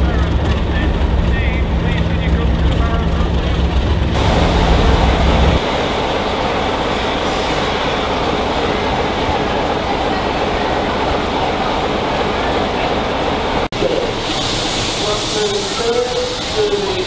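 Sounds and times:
diesel locomotive engine humming: 0.0 - 17.0
steady rushing hiss: 10.6 - 17.0.

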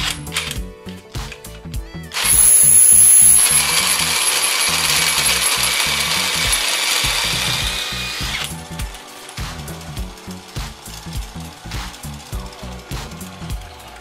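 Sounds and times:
cordless drill whining: 2.1 - 8.7.

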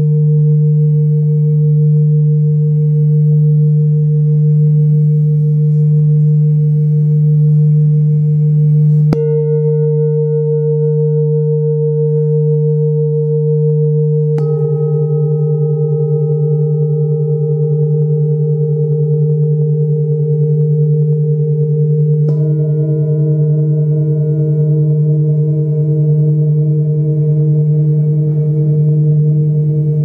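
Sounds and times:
singing bowls ringing: 0.0 - 30.0
mallet striking singing bowl: 9.1 - 12.3, 14.2 - 18.1, 22.2 - 26.1.

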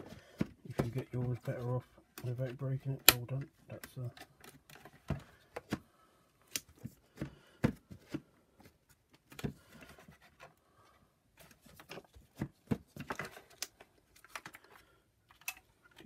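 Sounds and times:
plastic parts clicking and knocking: 0.0 - 5.9, 11.4 - 16.0.

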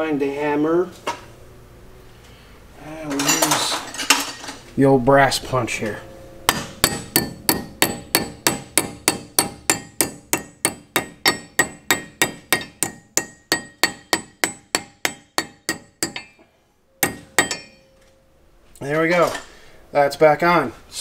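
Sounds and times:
hammer tapping a metal punch: 6.5 - 16.4, 17.0 - 17.8.

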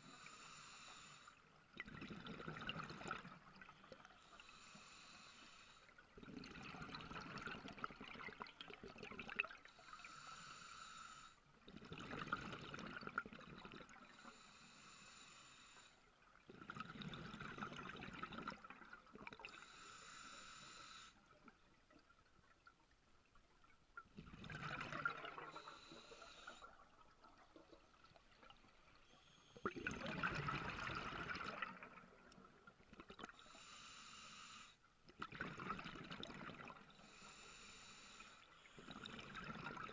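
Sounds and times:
regulator hissing inhale: 0.0 - 1.4, 4.2 - 5.9, 9.7 - 11.4, 14.1 - 16.0, 19.5 - 21.2, 25.5 - 26.7, 33.4 - 34.8, 37.0 - 39.0
exhaled bubbles gushing: 1.8 - 3.7, 6.2 - 9.6, 11.7 - 14.0, 16.5 - 19.5, 24.0 - 25.8, 29.6 - 32.3, 35.2 - 36.9, 38.8 - 39.9.

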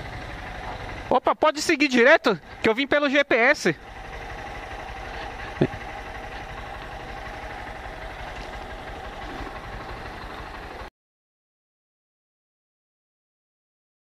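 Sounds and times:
motorcycle engine idling: 0.0 - 10.9.

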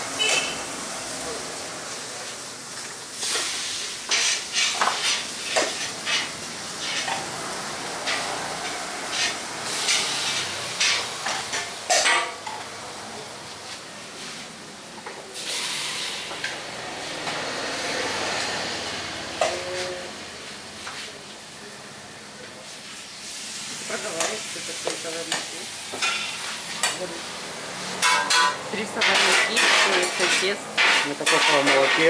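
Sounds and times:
metal ladle clinking against pan: 28.0 - 31.9.

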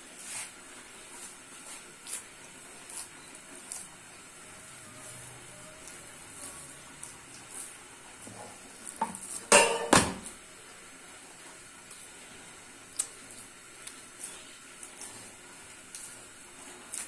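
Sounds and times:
loud knocks on metal: 9.5 - 10.2
metal cookware clattering: 9.5 - 10.2.

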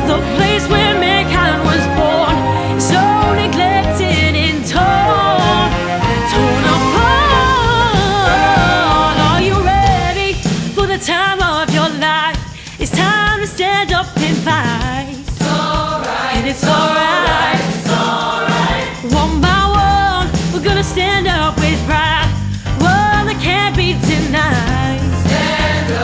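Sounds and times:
choir singing: 0.0 - 10.5, 15.4 - 19.9, 25.2 - 26.0
orchestra playing: 0.0 - 10.7
woman singing with vibrato: 0.0 - 17.5, 18.8 - 25.1
deep bass part: 4.8 - 10.4, 19.1 - 25.0.

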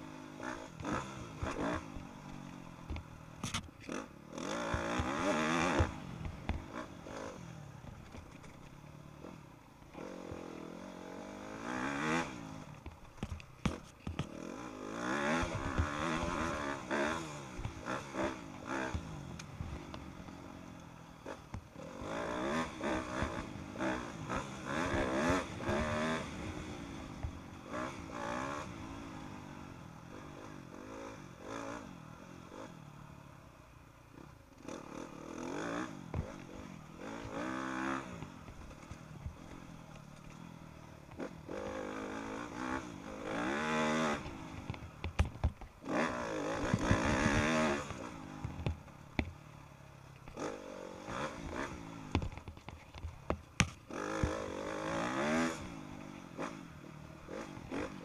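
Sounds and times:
motocross bike engine revving: 0.0 - 8.0, 9.1 - 12.8, 13.6 - 32.8, 34.1 - 49.3, 50.2 - 52.6, 53.2 - 58.0
bike knocks and clatter: 12.8 - 14.4, 44.3 - 45.8, 46.6 - 49.4, 52.0 - 54.4.

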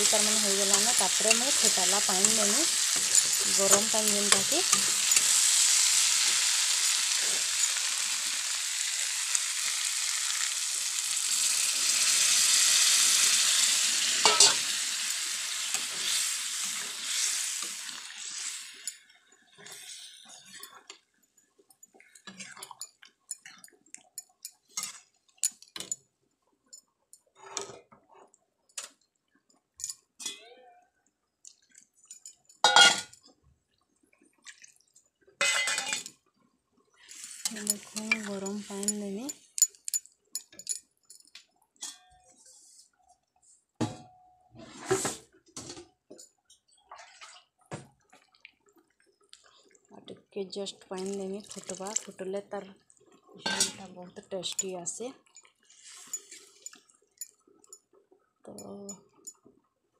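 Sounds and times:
spatula scraping and clinking on pan: 0.0 - 8.0, 14.2 - 14.7, 32.1 - 33.2, 35.4 - 36.1, 37.2 - 40.8, 53.4 - 53.8, 55.8 - 57.4
hot water splashing into pan: 0.0 - 19.0, 50.9 - 52.3
prawns sizzling in hot oil: 0.0 - 20.9, 32.2 - 33.2, 35.4 - 36.2, 37.0 - 40.8, 50.7 - 52.4, 53.4 - 57.8.

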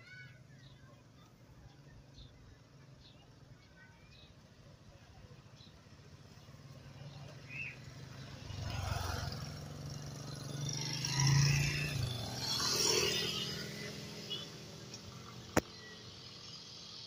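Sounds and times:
motorcycles passing: 5.8 - 17.0.

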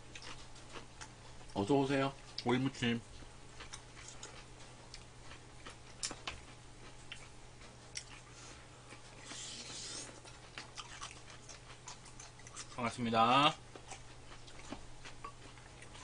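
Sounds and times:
chewing food: 0.0 - 16.0
steady low hum: 0.0 - 16.0
breathy slurping sound: 9.2 - 10.2.

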